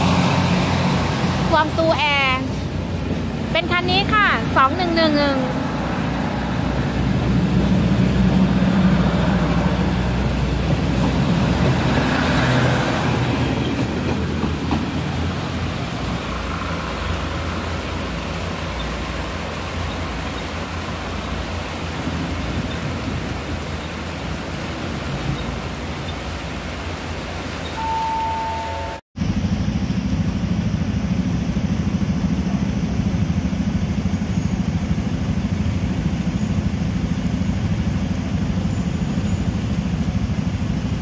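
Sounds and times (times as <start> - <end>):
train wheels rumbling on rails: 0.0 - 27.5
outdoor background noise: 0.0 - 41.0.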